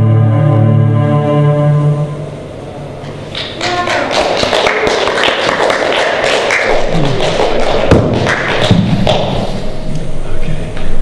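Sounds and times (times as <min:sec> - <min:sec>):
audience clapping: 0:03.3 - 0:09.5.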